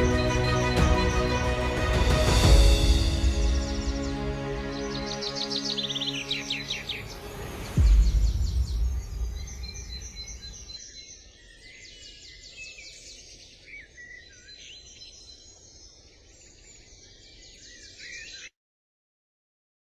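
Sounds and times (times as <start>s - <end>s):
background music: 0.0s - 10.5s
songbirds singing and chirping: 0.0s - 18.5s.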